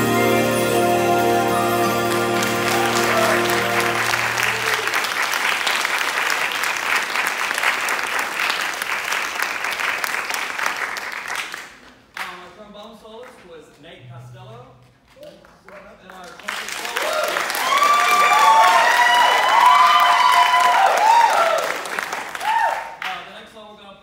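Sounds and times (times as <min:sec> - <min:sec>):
jazz band final chord: 0:00.0 - 0:05.0
audience applauding: 0:00.0 - 0:12.3, 0:15.2 - 0:23.2.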